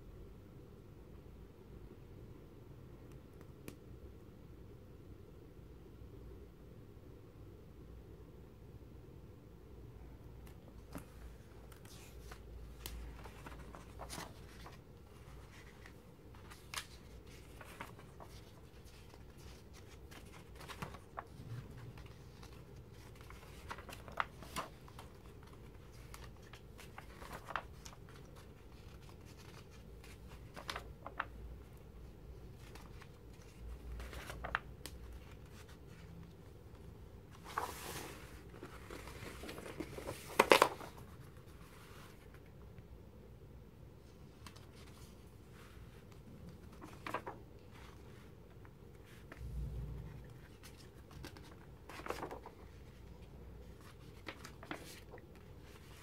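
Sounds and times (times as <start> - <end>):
magazine pages rustling: 10.5 - 42.5, 44.3 - 56.0.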